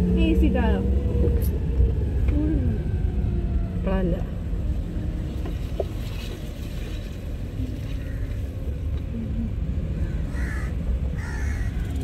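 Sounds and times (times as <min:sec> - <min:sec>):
car cabin road rumble: 0:00.0 - 0:12.0.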